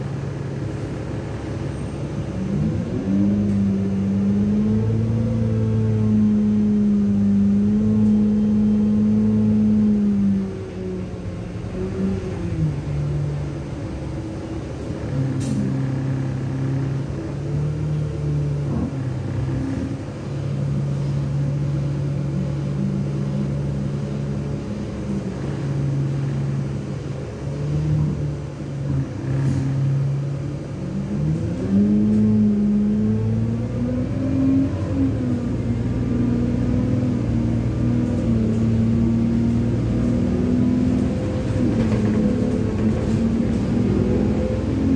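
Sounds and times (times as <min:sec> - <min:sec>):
bus diesel engine from inside: 0:00.0 - 0:44.9.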